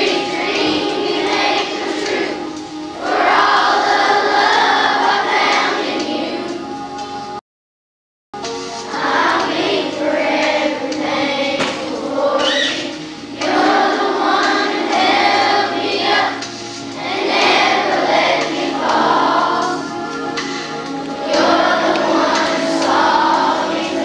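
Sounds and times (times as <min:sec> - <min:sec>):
children's choir singing: 0:00.0 - 0:07.4, 0:08.8 - 0:24.0.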